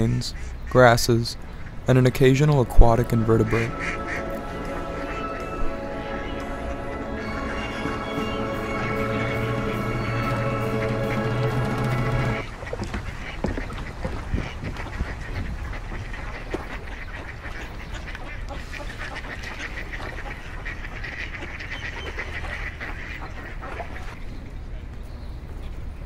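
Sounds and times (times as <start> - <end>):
music: 2.9 - 12.4
ducks quacking: 2.9 - 24.2.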